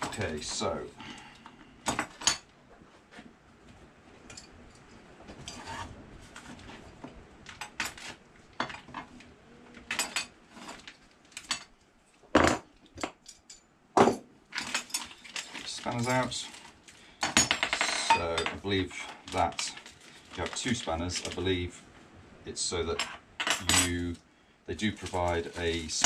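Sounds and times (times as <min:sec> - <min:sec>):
steel spanners clinking: 0:14.6 - 0:16.6, 0:17.2 - 0:19.8.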